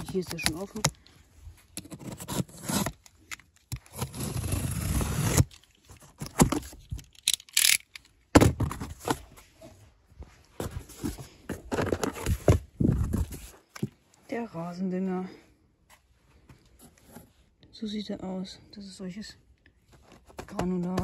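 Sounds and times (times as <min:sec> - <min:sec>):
box cutter slicing tape: 0:01.8 - 0:05.6.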